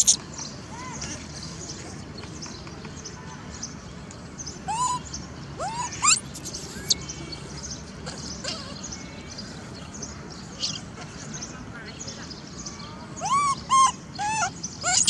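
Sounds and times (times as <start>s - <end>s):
baby monkey calling: 0.0s - 0.2s, 4.7s - 7.1s, 13.2s - 15.0s.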